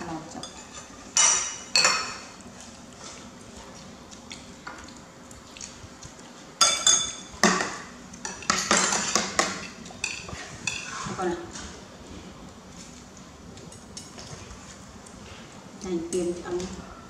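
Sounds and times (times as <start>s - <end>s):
metal spoons clinking on ceramic: 0.4s - 2.2s.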